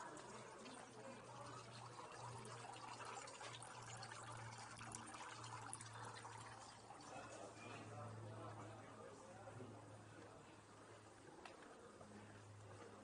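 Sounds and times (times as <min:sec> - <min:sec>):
fountain trickling: 0:00.0 - 0:08.6.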